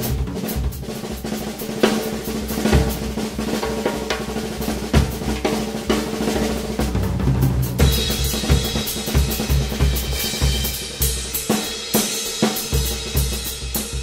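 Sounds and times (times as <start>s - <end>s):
drum kit rolls: 0.0s - 14.0s
bass drum strokes: 6.2s - 10.2s.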